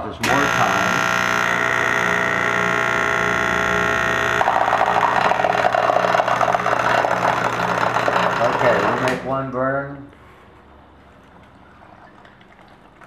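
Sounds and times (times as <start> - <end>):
machine electrical hum: 0.0 - 12.2
crackling electrical buzz: 0.1 - 9.3.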